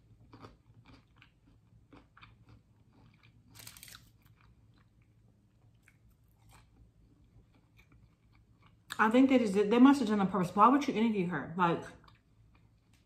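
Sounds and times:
chewing crispy fried potato: 0.0s - 9.1s, 11.9s - 13.0s
crunchy bite into fry: 0.2s - 4.6s.

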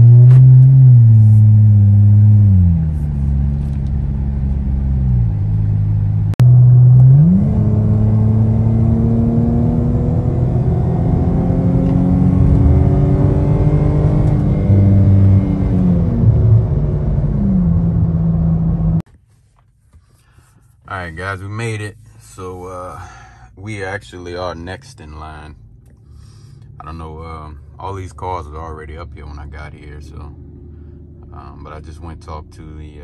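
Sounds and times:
car engine drone from cabin: 0.0s - 19.1s, 20.9s - 33.0s.

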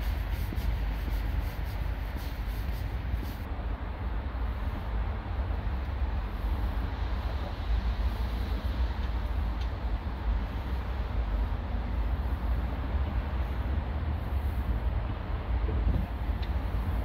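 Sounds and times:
broad hiss: 0.0s - 3.5s.

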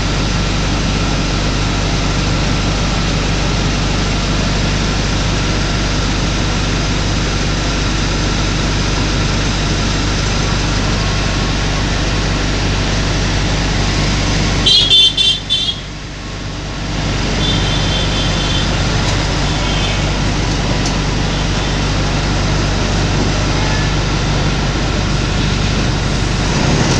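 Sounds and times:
traffic rumble: 0.0s - 26.9s
high-pitched horn toots: 14.6s - 16.0s, 17.3s - 20.2s.

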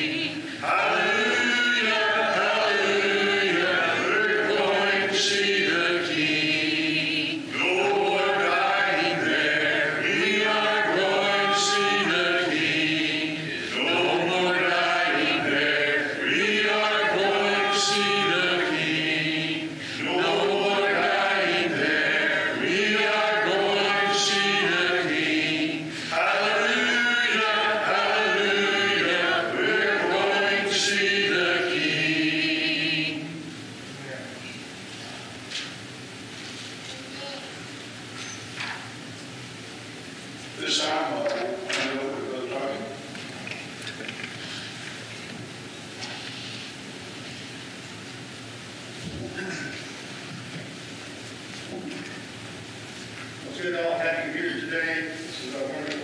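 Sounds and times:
congregation singing a hymn: 0.0s - 33.7s.

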